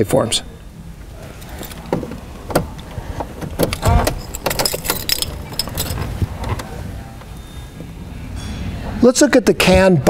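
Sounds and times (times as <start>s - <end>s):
keys jangling: 1.4s - 6.7s
car key turning in ignition: 1.4s - 7.3s.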